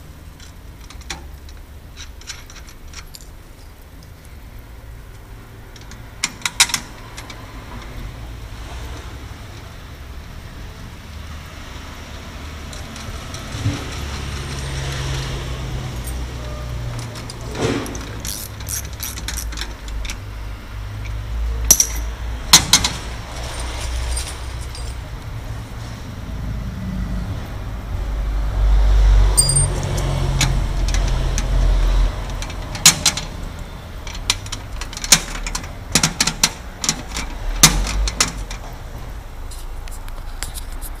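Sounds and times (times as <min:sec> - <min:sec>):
keys and lock clicking: 0:00.4 - 0:04.2, 0:15.9 - 0:20.2, 0:21.7 - 0:22.9, 0:29.4 - 0:38.7.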